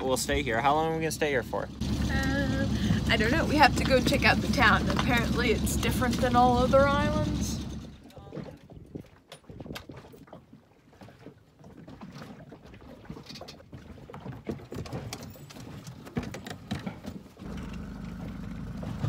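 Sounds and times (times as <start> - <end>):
outboard motor running: 0.0 - 10.0, 10.9 - 19.0
knocks and scuffs on dinghy: 3.2 - 7.3, 8.0 - 19.0.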